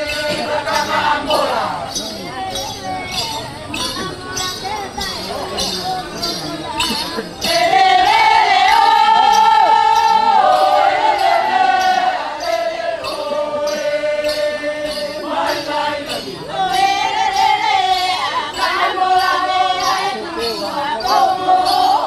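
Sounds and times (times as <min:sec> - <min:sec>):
group of voices chanting: 0:00.0 - 0:22.0
steady jingling beat: 0:00.0 - 0:22.0.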